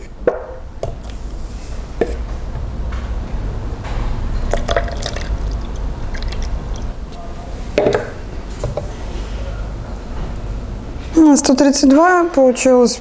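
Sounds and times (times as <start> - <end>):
liquid glaze pouring and splashing: 4.4 - 7.2.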